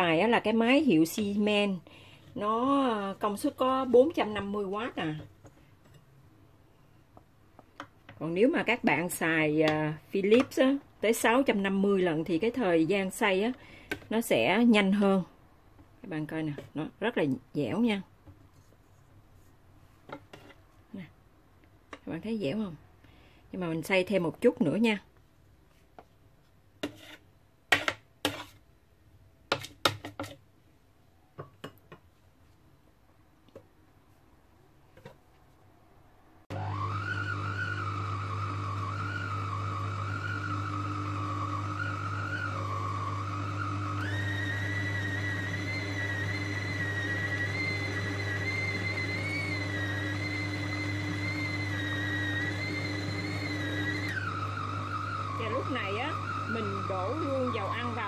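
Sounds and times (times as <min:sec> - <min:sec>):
food processor motor whining: 0:36.5 - 0:58.0.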